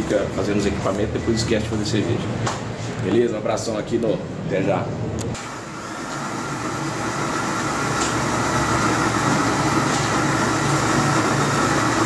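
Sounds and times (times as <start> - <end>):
drill motor whine: 5.4 - 12.0.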